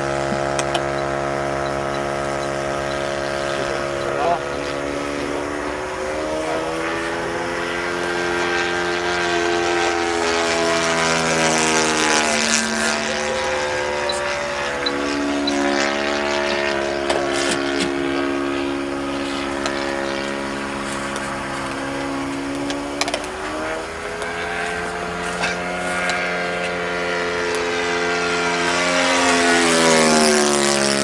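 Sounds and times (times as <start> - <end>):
model plane engine droning: 0.0 - 31.0.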